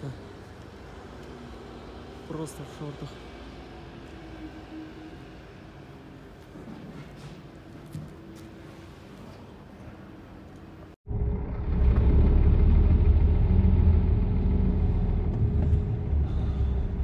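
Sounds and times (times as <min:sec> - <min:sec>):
faint outdoor background: 0:00.0 - 0:17.0
truck diesel engine rumble: 0:11.1 - 0:17.0.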